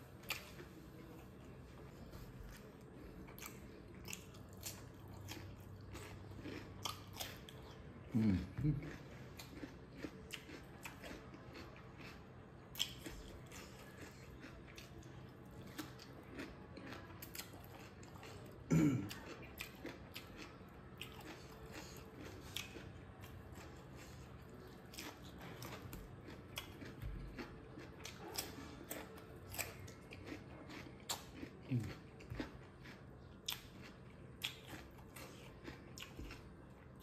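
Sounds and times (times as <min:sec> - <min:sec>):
chewing and crunching food: 0:00.0 - 0:37.0.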